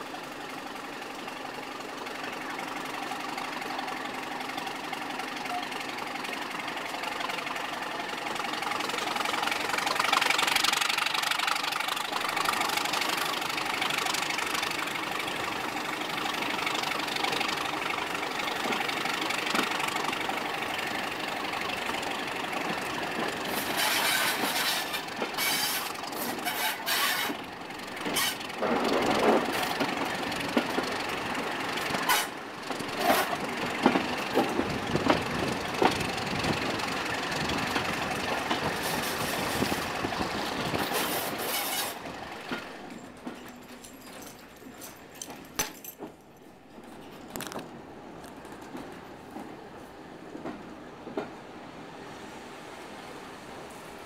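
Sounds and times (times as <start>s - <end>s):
diesel locomotive engine running: 0.0s - 54.0s.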